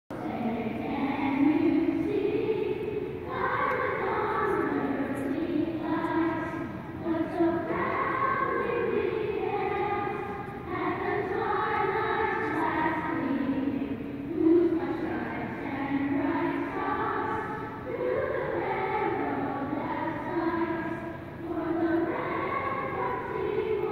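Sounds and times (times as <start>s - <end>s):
children's choir singing: 0.1s - 23.9s.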